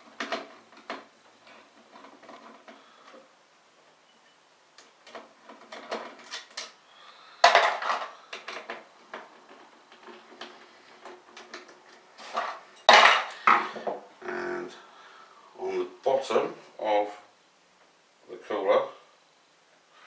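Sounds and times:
parts clattering: 0:04.8 - 0:14.1.

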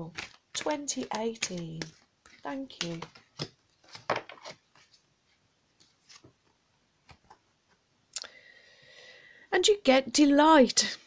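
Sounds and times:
cards clicking and tapping: 0:00.1 - 0:04.9.

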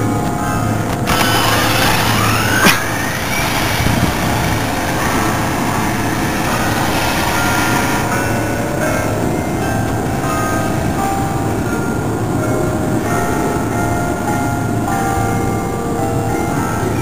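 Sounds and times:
steady rushing noise: 0:00.0 - 0:13.7
electric motor whining: 0:00.9 - 0:10.1.

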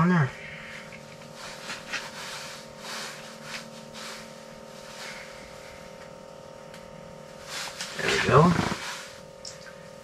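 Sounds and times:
faint steady hum: 0:00.0 - 0:10.0
fishing line rustling: 0:01.2 - 0:05.7.

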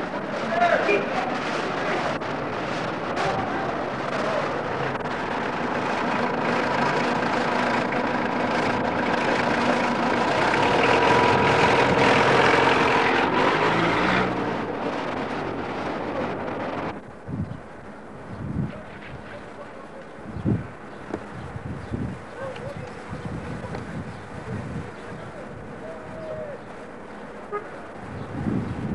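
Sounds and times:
motor vehicle engine running: 0:00.0 - 0:28.9.

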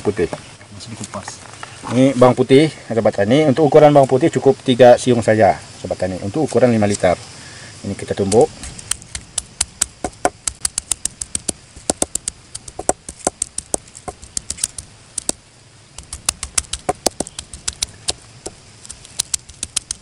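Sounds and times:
stone pounding garlic on wood: 0:08.3 - 0:15.4, 0:16.0 - 0:18.6.

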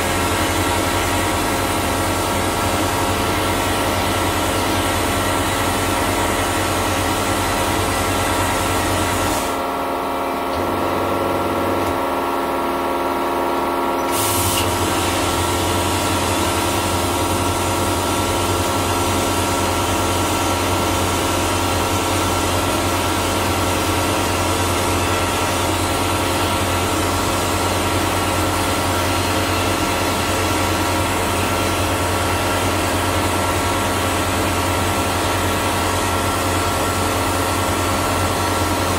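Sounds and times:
machine hum: 0:00.0 - 0:38.9
spray blaster hissing: 0:05.7 - 0:09.6, 0:14.0 - 0:19.5.

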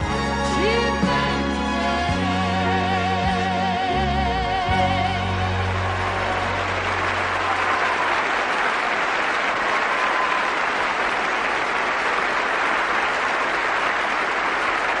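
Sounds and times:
audience applauding: 0:05.1 - 0:15.0.

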